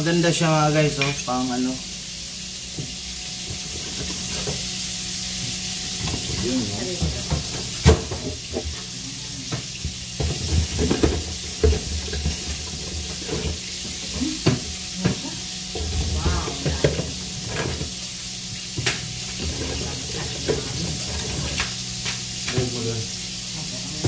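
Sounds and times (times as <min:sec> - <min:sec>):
steady hiss: 0:00.0 - 0:11.8.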